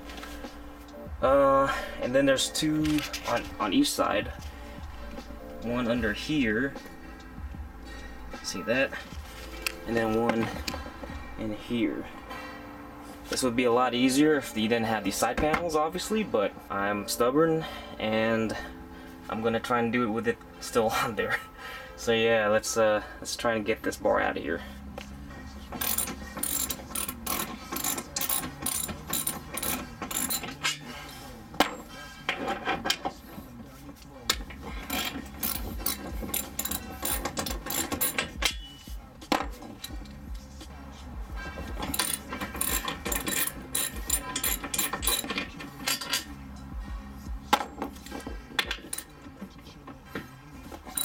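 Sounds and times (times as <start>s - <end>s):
hand ratchet clicking: 25.8s - 30.8s, 34.3s - 38.7s, 41.6s - 46.3s, 47.9s - 49.1s.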